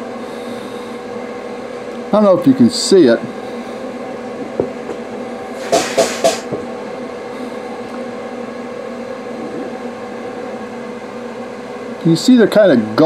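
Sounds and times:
machinery hum: 0:00.0 - 0:13.0
short hissing burst: 0:05.6 - 0:06.4.

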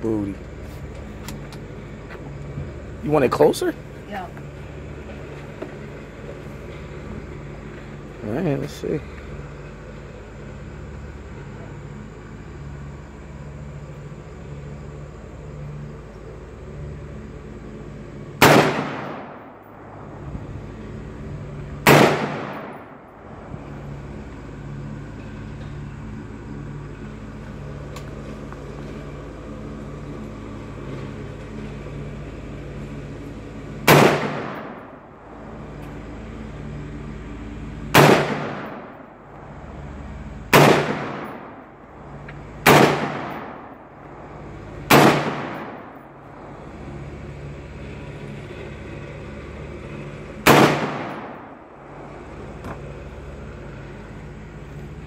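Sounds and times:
steady low hum: 0:00.0 - 0:55.0
rifle shots echoing: 0:18.4 - 0:19.8, 0:21.8 - 0:23.1, 0:33.8 - 0:35.0, 0:37.9 - 0:39.0, 0:40.5 - 0:41.6, 0:42.6 - 0:43.8, 0:44.9 - 0:46.0, 0:50.4 - 0:51.6.

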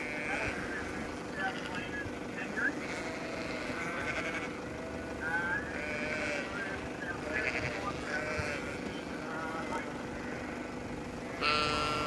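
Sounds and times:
sheep bleating: 0:00.0 - 0:12.0.

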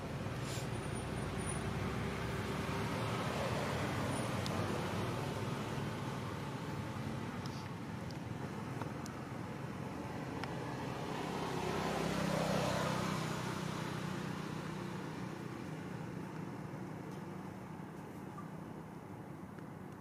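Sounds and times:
vehicle engine passing by: 0:00.0 - 0:07.6, 0:09.3 - 0:17.6.

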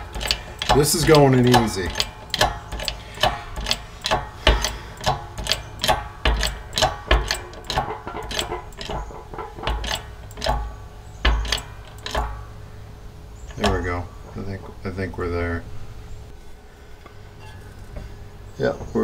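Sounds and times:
press clicking and clunking: 0:00.0 - 0:12.6, 0:13.4 - 0:14.8.

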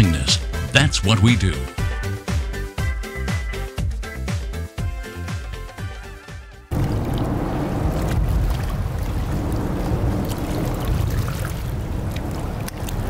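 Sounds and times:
motorboat running on water: 0:06.7 - 0:13.0.

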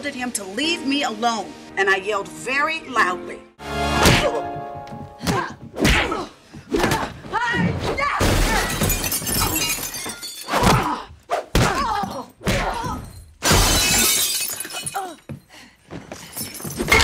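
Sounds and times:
glass shattering: 0:08.4 - 0:10.8, 0:13.0 - 0:15.2.

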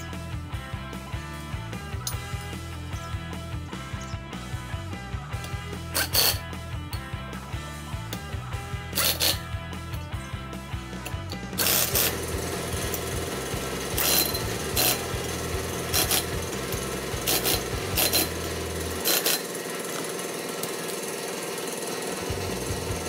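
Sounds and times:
impact wrench hammering: 0:01.9 - 0:02.7, 0:05.3 - 0:07.2, 0:07.9 - 0:10.1, 0:10.9 - 0:23.0.

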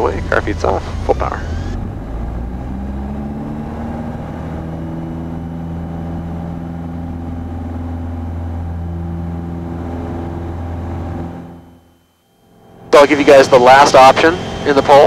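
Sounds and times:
airplane piston engine at full power: 0:13.0 - 0:15.0.

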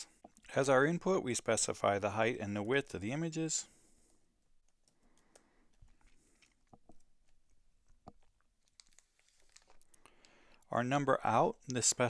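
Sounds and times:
faint keyboard clicks: 0:04.0 - 0:07.5, 0:08.1 - 0:10.7.

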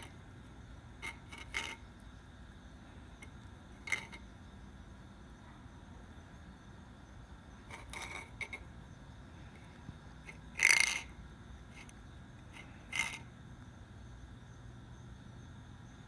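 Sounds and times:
bowl scraping on paving stones: 0:00.0 - 0:00.2, 0:00.9 - 0:02.0, 0:03.1 - 0:04.3, 0:07.6 - 0:08.7, 0:10.2 - 0:13.3.

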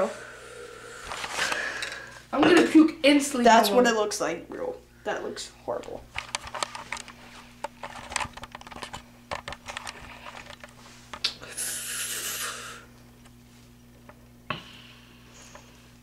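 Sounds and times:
faint steady hum: 0:00.0 - 0:16.0
hiss: 0:11.4 - 0:12.9.

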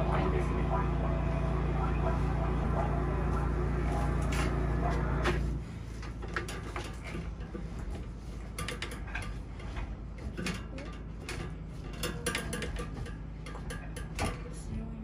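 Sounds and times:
low hum: 0:00.0 - 0:15.0
cable clicking and rattling: 0:05.9 - 0:14.6.

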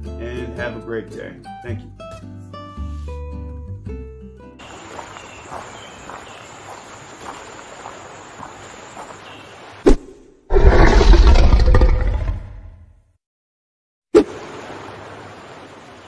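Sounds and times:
faint steady hiss: 0:04.6 - 0:09.8
loud roar: 0:10.5 - 0:12.8.

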